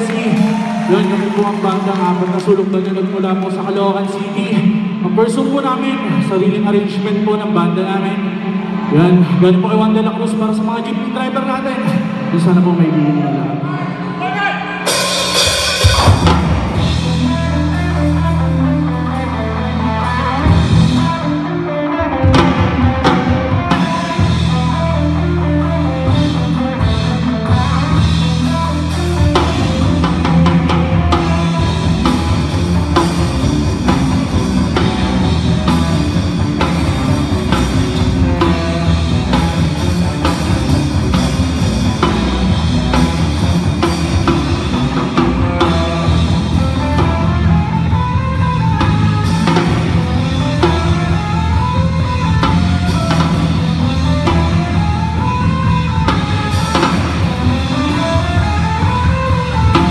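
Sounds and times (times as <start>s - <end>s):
rock band playing: 0.0s - 59.9s
distorted electric guitars: 11.8s - 59.9s
drum kit: 14.8s - 59.9s.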